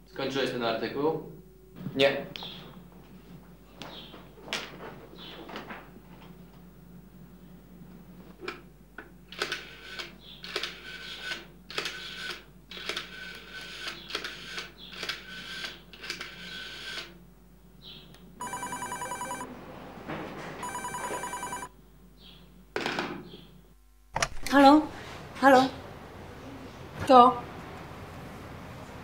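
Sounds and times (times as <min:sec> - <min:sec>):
telephone dialling clicks and beeps: 0:18.4 - 0:19.4, 0:20.6 - 0:21.7
electronic telephone ringing: 0:18.4 - 0:19.5, 0:20.6 - 0:21.7.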